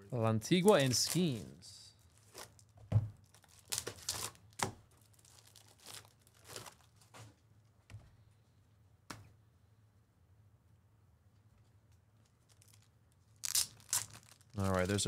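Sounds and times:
foil wrapper tearing and crinkling: 0.6s - 7.1s, 12.4s - 15.0s.

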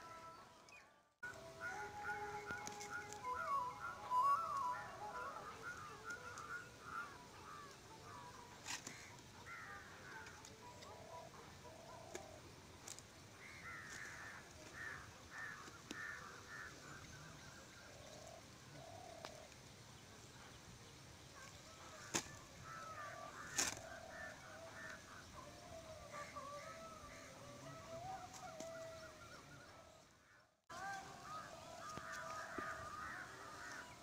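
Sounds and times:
lower bird calls: 0.0s - 12.5s
birds chirping: 0.0s - 34.0s.

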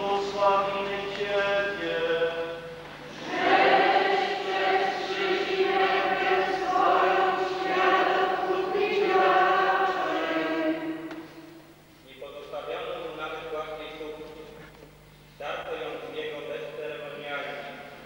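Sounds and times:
congregation singing a hymn: 0.0s - 11.7s.

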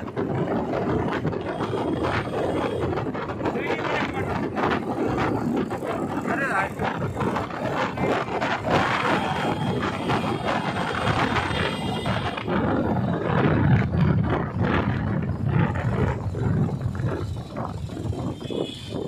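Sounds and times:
motorcycles and scooters passing: 0.0s - 19.0s.

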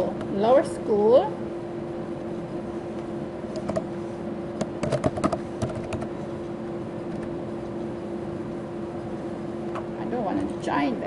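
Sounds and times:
steady low hum: 0.0s - 11.0s
keyboard typing: 4.7s - 6.1s.

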